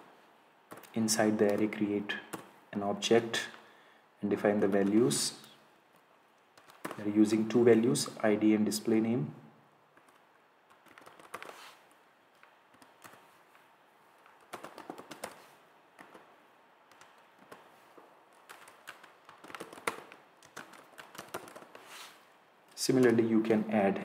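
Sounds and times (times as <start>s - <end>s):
keyboard typing: 0.7s - 2.5s, 4.5s - 5.2s, 6.5s - 7.1s, 9.9s - 13.6s, 14.2s - 16.3s, 16.9s - 21.8s.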